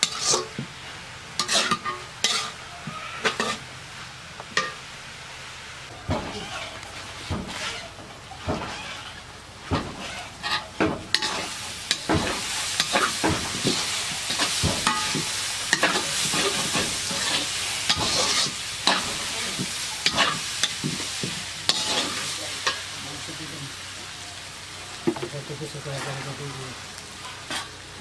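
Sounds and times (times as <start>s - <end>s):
metal spatula scraping wok: 0.0s - 0.6s, 1.4s - 3.7s, 6.1s - 23.4s, 25.8s - 27.9s
meat sizzling in oil: 0.0s - 28.0s.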